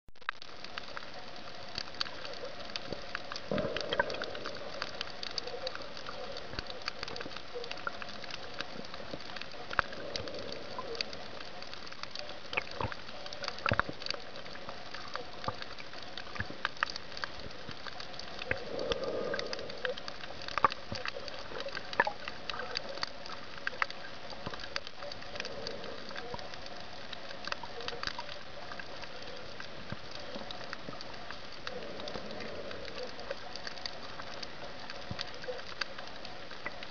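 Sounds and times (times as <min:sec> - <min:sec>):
sharp underwater clicks and crackles: 0:00.2 - 0:36.9
muffled swells of water: 0:00.4 - 0:36.9
underwater hiss: 0:02.0 - 0:12.0, 0:17.1 - 0:23.8, 0:28.7 - 0:34.6.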